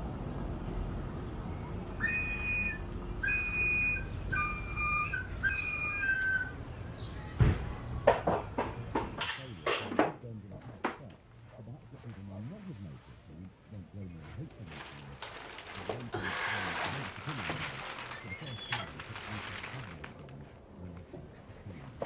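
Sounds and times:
whistled notes: 2.0s - 6.6s
sharp knocks and clatters: 7.4s - 10.2s
low background hum: 9.4s - 22.0s.

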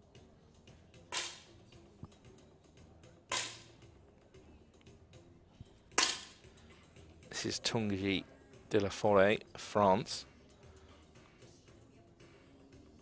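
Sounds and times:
air rifle shots: 1.1s - 1.5s, 3.3s - 3.7s, 6.0s - 6.4s.

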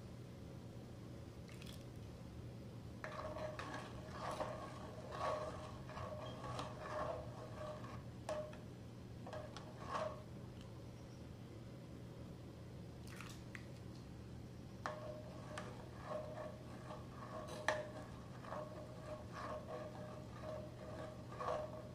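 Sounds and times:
spoon scraping metal pot: 3.0s - 8.6s, 9.2s - 10.3s, 14.8s - 21.9s.

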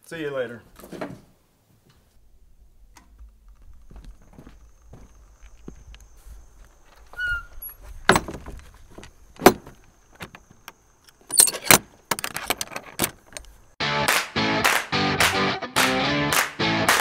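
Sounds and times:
door squeaking: 7.0s - 8.6s
metal latch rattling and clicking: 8.0s - 13.6s.

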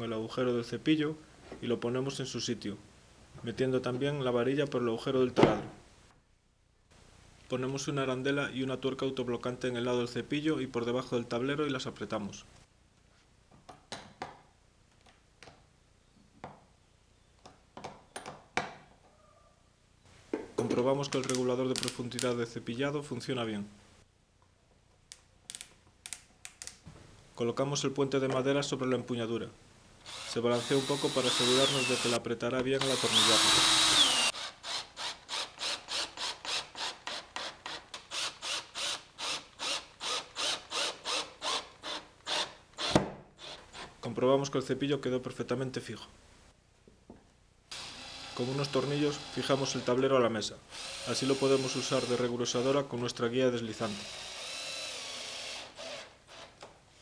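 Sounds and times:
screw creaking into wood: 32.8s - 43.9s.

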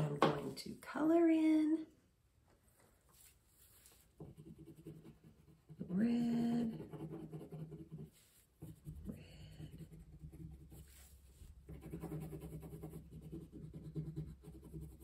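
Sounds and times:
pencil strokes scratching on paper: 3.1s - 15.0s.

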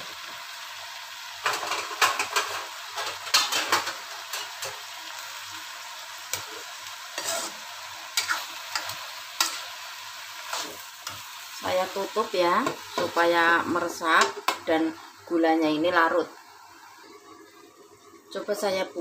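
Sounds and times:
vegetables sizzling in oil: 0.0s - 19.0s
spatula scraping and knocking pan: 7.2s - 7.6s.

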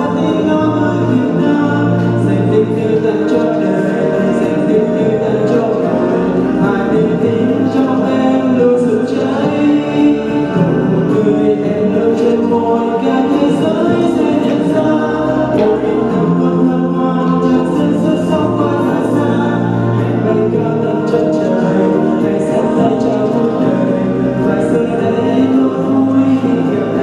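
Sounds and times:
backing music: 0.0s - 27.0s
man singing into microphone: 0.0s - 27.0s.

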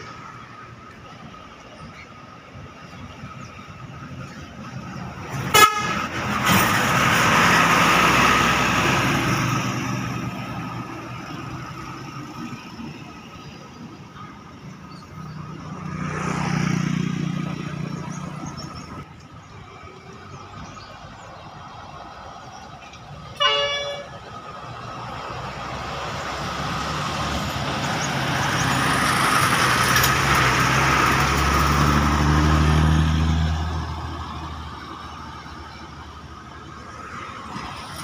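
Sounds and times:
bus engine and tyres passing: 0.0s - 38.0s
bus horn toot: 5.4s - 6.3s, 23.3s - 24.3s.

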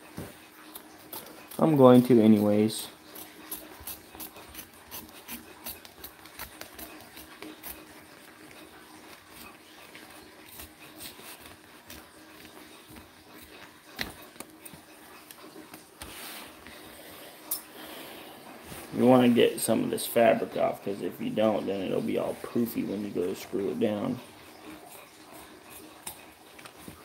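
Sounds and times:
scissors snipping fabric: 0.6s - 2.1s, 3.1s - 15.4s.

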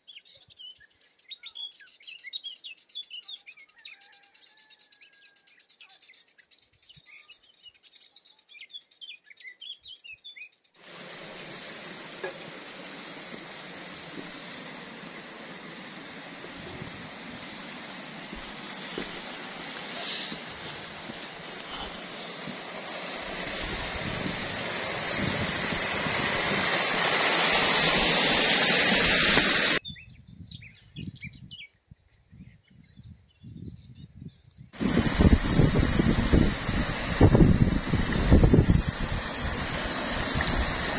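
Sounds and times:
small birds chirping: 0.0s - 26.5s, 29.6s - 36.4s
high insect trill: 10.8s - 22.7s
water rushing in stream: 10.8s - 29.8s, 34.8s - 40.9s.

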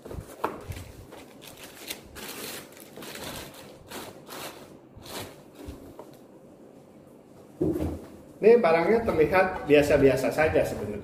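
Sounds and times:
plastic wrapping crinkling: 0.0s - 5.8s.

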